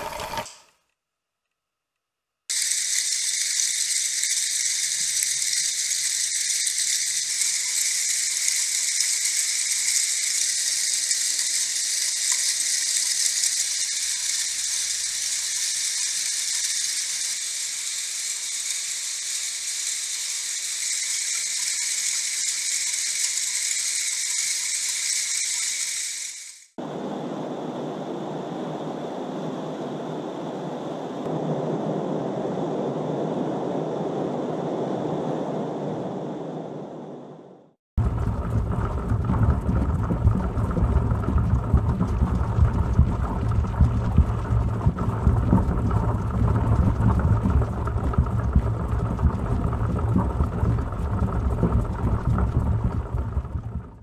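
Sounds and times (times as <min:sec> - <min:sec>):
metallic rattle of ball chains: 0:02.5 - 0:26.7.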